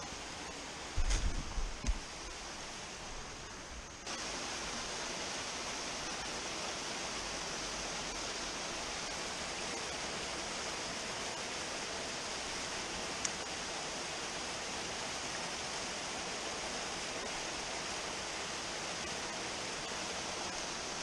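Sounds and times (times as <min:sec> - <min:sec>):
waterfall rushing into a pool: 0:04.0 - 0:21.0.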